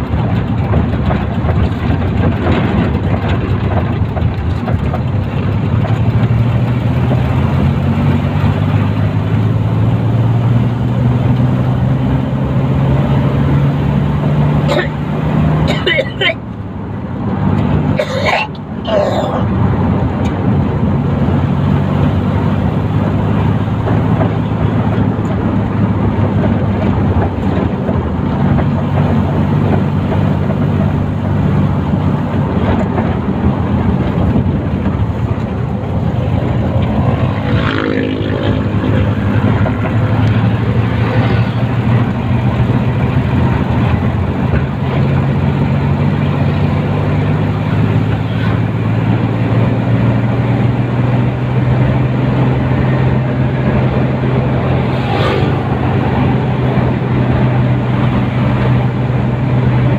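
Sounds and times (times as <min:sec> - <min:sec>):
road and wind noise: 0:00.0 - 0:59.9
vehicle engine humming: 0:00.0 - 0:59.9
vehicle passing by: 0:19.4 - 0:59.9.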